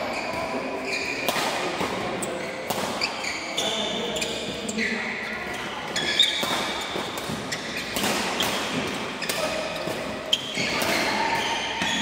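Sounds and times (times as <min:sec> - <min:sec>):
court shoes squeaking: 0:00.0 - 0:12.0
rackets hitting shuttlecock: 0:01.2 - 0:03.3, 0:05.9 - 0:12.0.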